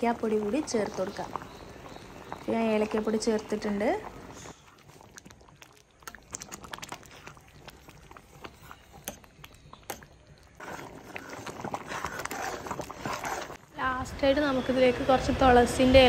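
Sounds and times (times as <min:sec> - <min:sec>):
thick liquid bubbling in pot: 0:00.0 - 0:16.0
spoon stirring: 0:04.2 - 0:13.6.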